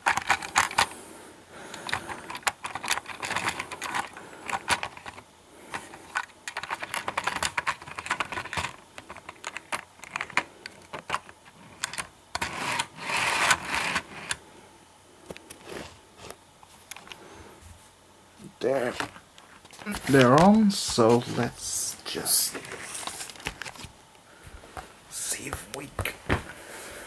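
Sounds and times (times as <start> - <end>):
scraping and rustling: 1.9 - 14.4, 15.5 - 18.0, 18.7 - 24.0.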